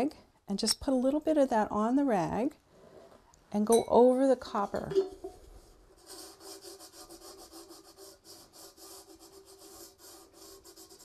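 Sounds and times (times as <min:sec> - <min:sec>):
cloth rag rubbing metal: 0:05.2 - 0:11.0.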